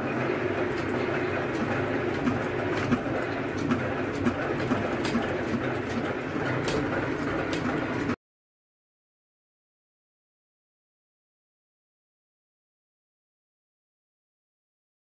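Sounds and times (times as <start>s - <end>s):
drilling rig engine running: 0.0s - 8.2s.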